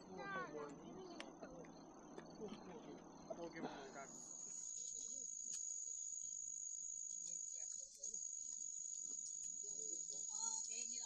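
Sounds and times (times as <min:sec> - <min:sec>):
insects trilling: 0:00.1 - 0:11.0.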